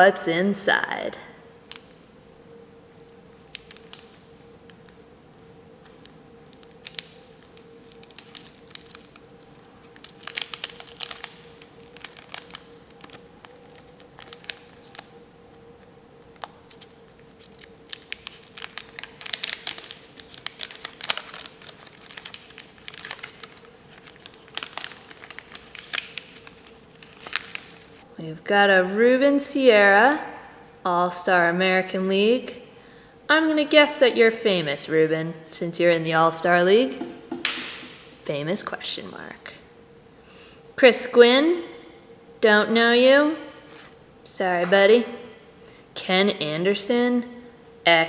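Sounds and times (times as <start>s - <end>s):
faint steady hum: 0.0s - 48.0s
paper wrapper crinkling and tearing: 2.9s - 5.0s, 5.8s - 15.2s, 16.2s - 28.0s.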